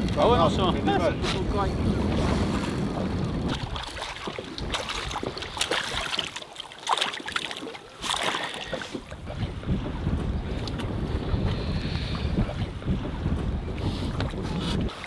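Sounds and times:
fish thrashing and splashing: 3.5 - 9.2.

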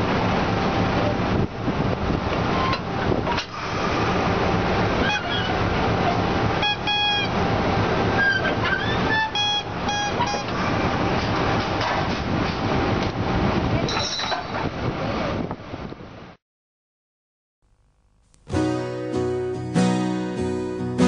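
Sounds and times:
diesel locomotive engine running: 0.0 - 16.4.

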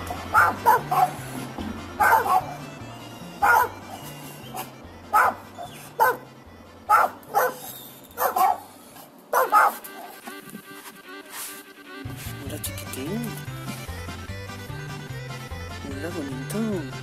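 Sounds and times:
small dogs barking: 0.0 - 1.2, 2.0 - 2.6, 3.4 - 6.3, 6.9 - 8.7, 9.3 - 10.2
background music with bass line: 0.0 - 6.9, 11.8 - 17.0.

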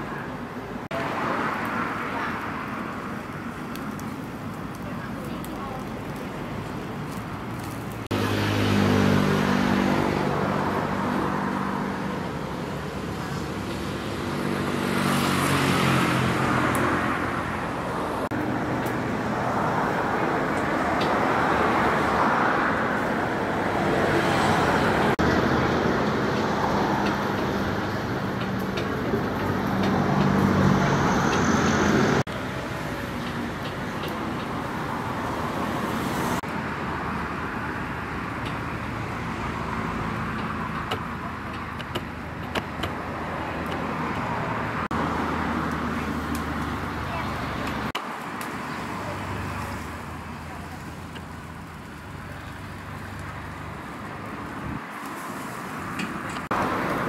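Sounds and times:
vehicles passing close by: 0.0 - 57.0.

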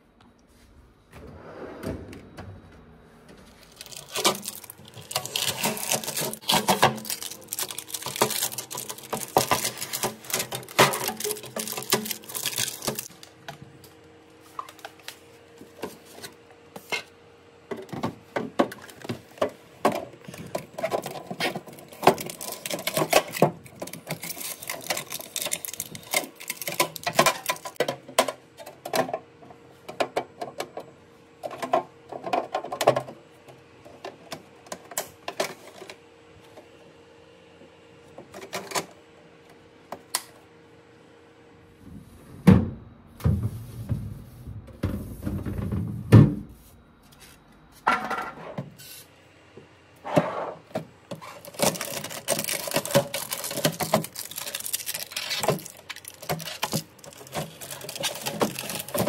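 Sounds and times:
faint steady hum: 0.0 - 59.0
plastic drawers clicking and knocking: 3.9 - 13.1, 17.7 - 29.1, 50.7 - 59.0.

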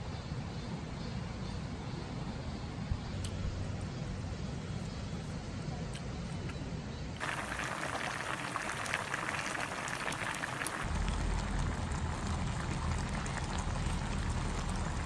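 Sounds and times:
stew bubbling in a pot: 7.2 - 15.0
steady low rumble: 10.8 - 15.0.

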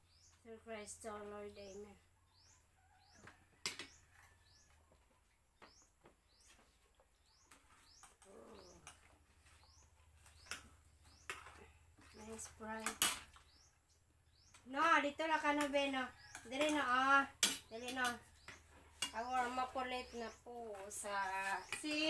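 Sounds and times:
faint bird chirping: 0.0 - 22.0.

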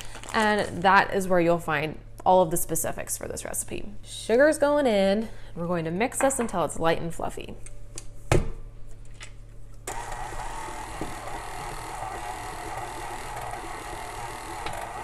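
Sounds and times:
stand mixer motor running: 9.9 - 15.0.

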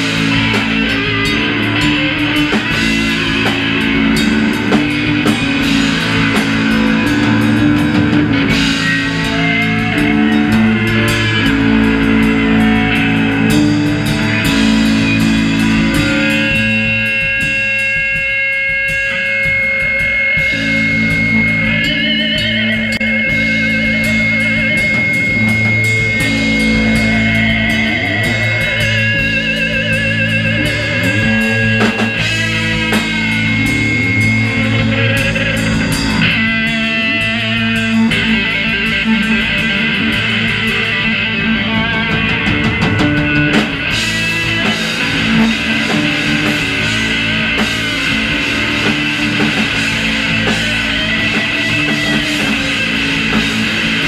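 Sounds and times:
steady high tone: 0.0 - 18.0, 19.7 - 54.0
bass guitar: 0.0 - 54.0
drum kit: 0.0 - 54.0
electric guitar: 0.0 - 54.0.

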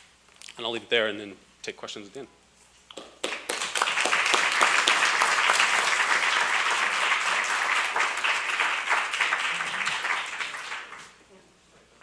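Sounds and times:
audience applauding: 3.2 - 11.2.

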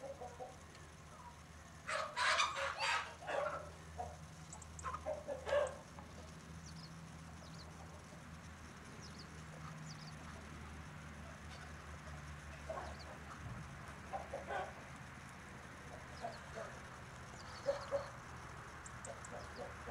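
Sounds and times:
steady low hum: 0.0 - 19.9
hens clucking and squawking: 1.9 - 6.2, 12.3 - 14.9.

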